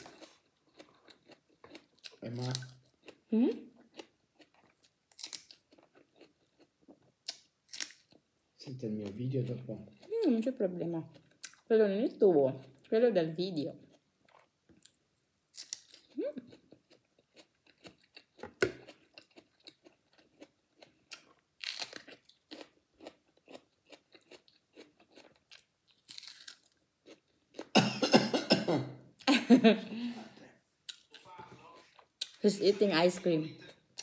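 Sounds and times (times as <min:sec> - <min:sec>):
chewing crunchy peppers: 0:00.0 - 0:08.2, 0:09.0 - 0:11.7, 0:15.6 - 0:27.8.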